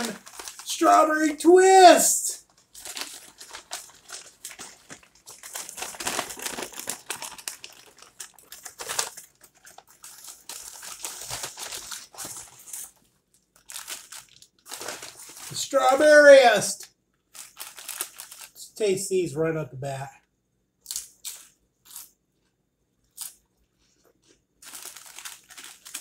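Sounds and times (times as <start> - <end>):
paper bag rustling and crinkling: 0.0 - 1.0, 2.4 - 13.0, 13.6 - 15.7, 24.6 - 26.0.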